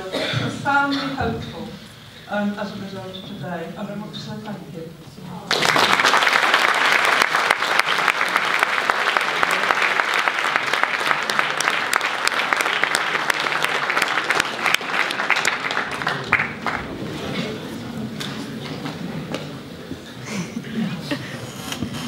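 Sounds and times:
audience applauding: 5.5 - 19.0.

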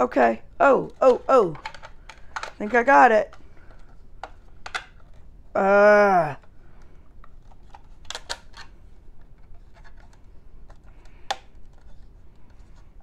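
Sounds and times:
plastic clicks and taps: 0.9 - 5.1.

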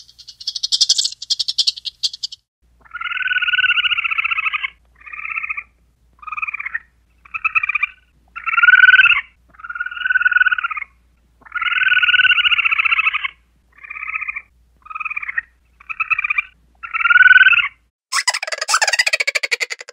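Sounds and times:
chipmunk trilling calls: 0.0 - 5.5, 11.5 - 19.9.

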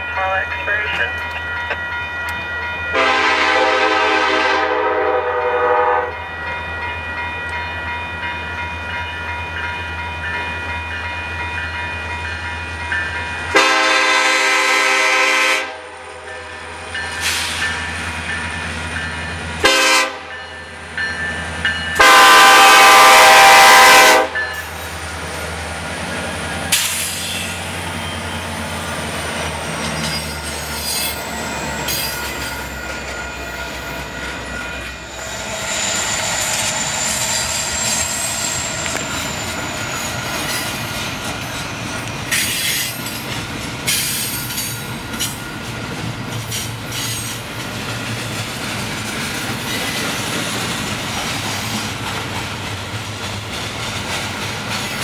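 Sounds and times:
locomotive air horn blasts: 2.9 - 6.2, 13.5 - 16.0, 19.6 - 20.4, 22.0 - 24.4
train wheels clattering on rails: 16.4 - 55.0.

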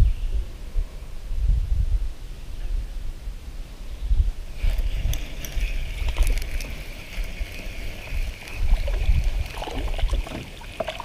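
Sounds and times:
wind gusting on microphone: 0.0 - 11.0
small clicks: 4.6 - 7.7
water lapping: 4.6 - 11.0.

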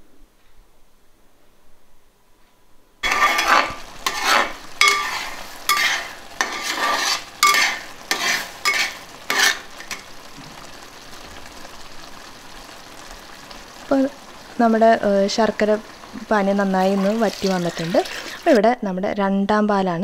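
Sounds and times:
metal ladle scraping pot: 3.0 - 10.1
pot simmering with bubbling hiss: 3.0 - 18.6.

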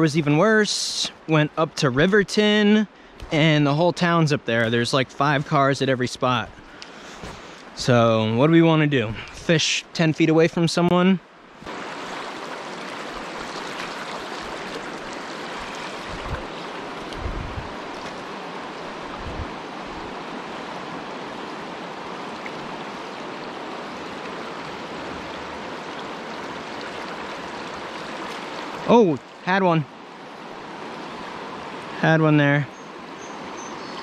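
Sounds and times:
river water rushing over rocks: 11.6 - 32.1.

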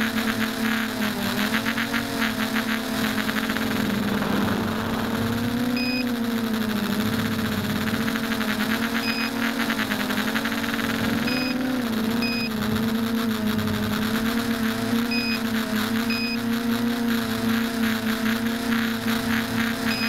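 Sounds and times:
electric motors and propellers whining: 0.0 - 20.0
short high beeps: 5.7 - 6.1, 8.9 - 9.4, 11.2 - 12.5.

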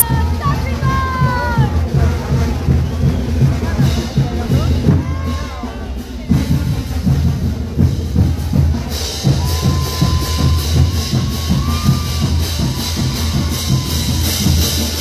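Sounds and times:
heavy drum beat: 0.0 - 15.0
parade band music: 4.4 - 15.0.

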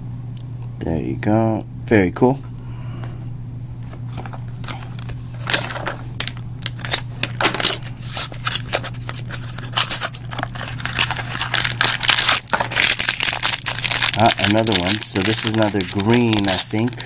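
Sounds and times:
steady low hum: 0.0 - 17.0
cardboard and foil rustling: 4.6 - 17.0.

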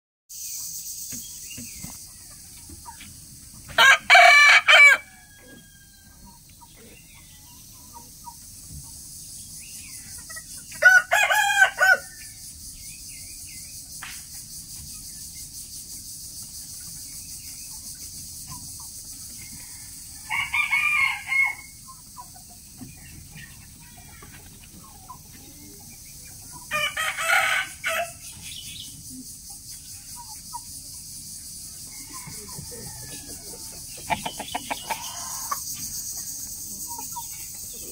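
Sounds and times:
rooster crowing: 3.7 - 6.3, 10.8 - 12.3, 19.4 - 21.8, 26.7 - 28.2, 31.9 - 33.9.

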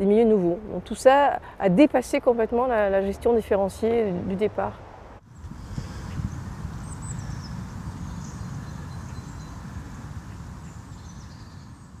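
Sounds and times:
thin bird chirps: 6.1 - 12.0.

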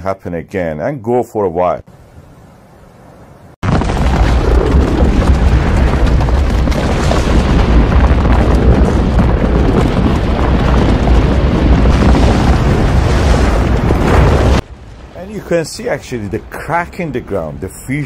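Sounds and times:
deep rumble of lava eruption: 3.6 - 18.0.

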